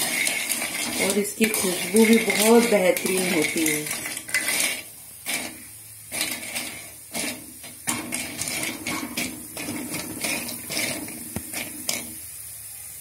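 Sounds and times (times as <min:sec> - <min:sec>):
spoon stirring and scraping pan: 0:00.0 - 0:12.4.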